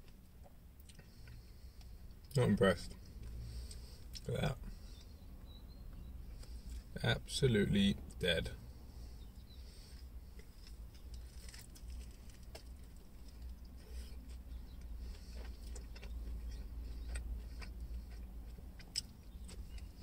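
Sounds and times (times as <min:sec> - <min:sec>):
low steady hum: 0:00.0 - 0:20.0
chewing: 0:09.9 - 0:20.0
small crackles: 0:10.4 - 0:20.0.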